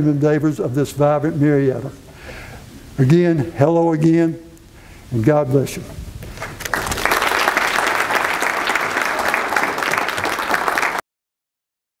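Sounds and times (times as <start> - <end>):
audience applauding: 6.3 - 11.0.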